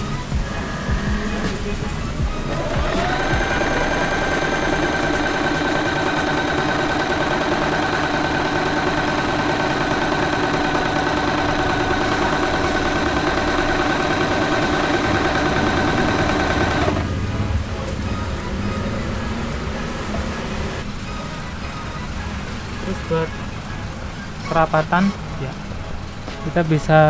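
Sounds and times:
sewing machine running: 0:02.4 - 0:17.2.

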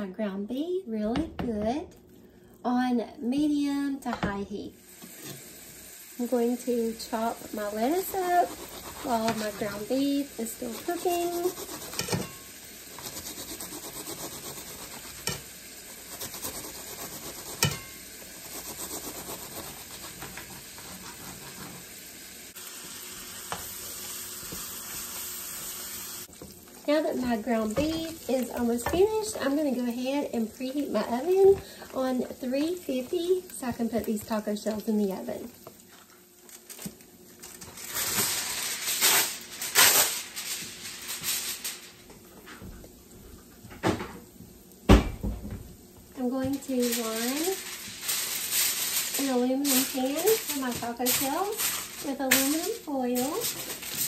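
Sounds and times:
meat sizzling in a frying pan: 0:04.7 - 0:42.1, 0:46.2 - 0:54.0
aluminum foil crinkling: 0:07.5 - 0:12.3, 0:35.7 - 0:42.1, 0:46.5 - 0:54.0
spatula stirring meat in pan: 0:07.6 - 0:22.2.

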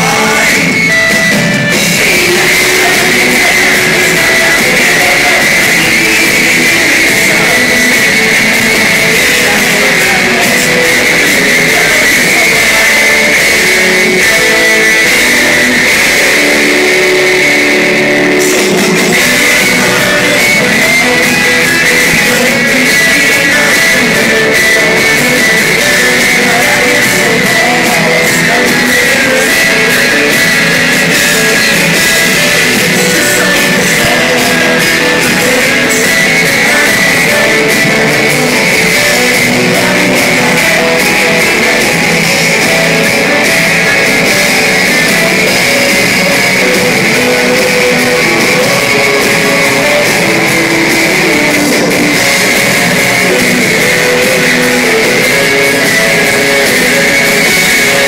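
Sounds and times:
live rock band playing: 0:00.0 - 0:58.0.

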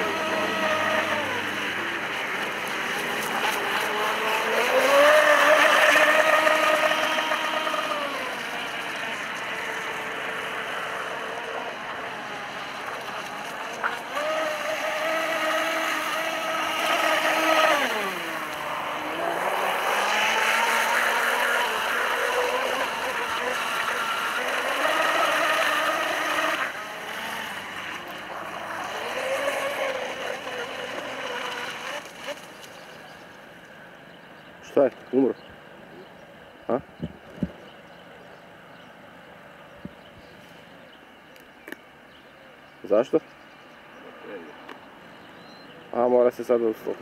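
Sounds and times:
electric motor whine: 0:00.0 - 0:34.0.

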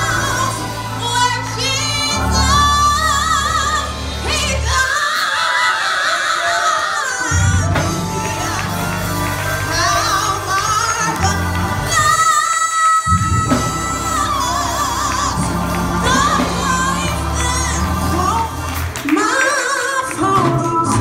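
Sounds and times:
keyboard chords: 0:00.0 - 0:05.8, 0:07.2 - 0:21.0
woman singing gospel: 0:00.0 - 0:21.0.

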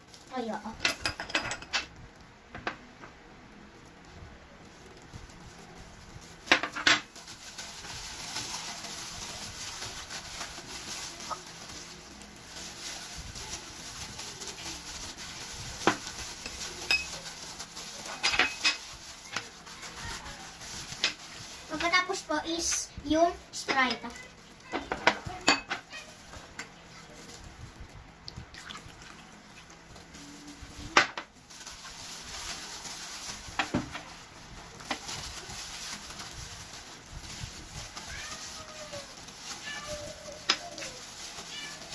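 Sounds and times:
plastic gloves crinkling: 0:00.0 - 0:41.9
gloved hands squishing raw chicken: 0:07.1 - 0:18.2
gloved hands squishing chicken: 0:07.1 - 0:41.9.

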